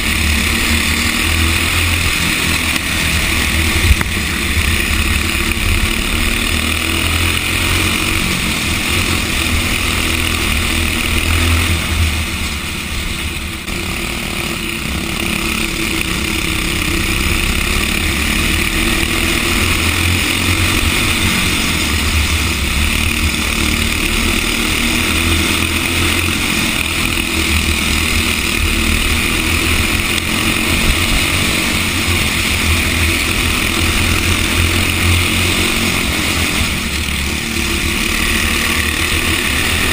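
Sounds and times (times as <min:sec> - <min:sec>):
kart engine running hard: 0:00.0 - 0:39.9.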